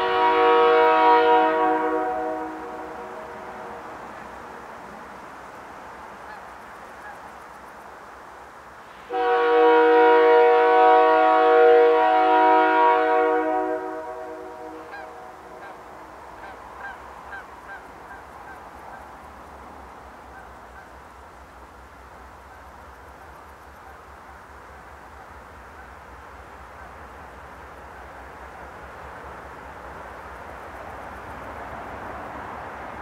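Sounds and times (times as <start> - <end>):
locomotive air horn blast: 0.0 - 4.0, 8.9 - 15.8.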